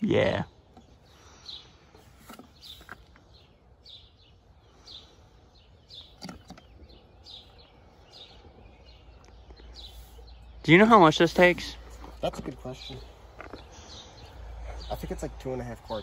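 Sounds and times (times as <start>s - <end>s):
small bird chirping: 0.5s - 16.0s.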